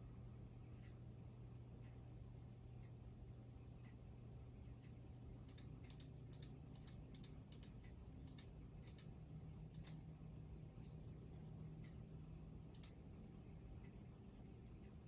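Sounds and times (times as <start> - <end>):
low steady hum: 0.0 - 15.0
computer mouse clicking: 4.8 - 10.0, 12.7 - 13.2.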